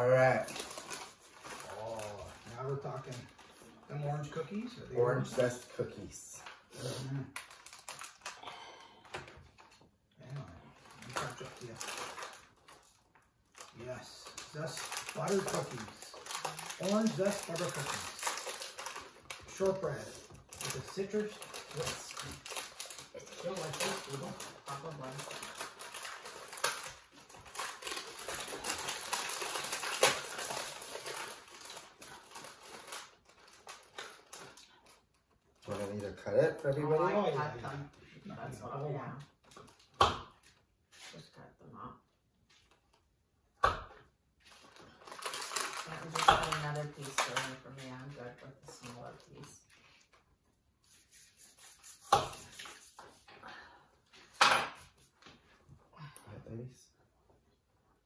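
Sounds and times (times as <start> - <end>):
plastic packaging crinkling: 0.0 - 3.8, 7.3 - 8.4, 10.8 - 36.8, 44.4 - 49.6
sharp plastic crackle: 7.3 - 8.4, 10.8 - 36.8, 44.4 - 49.5.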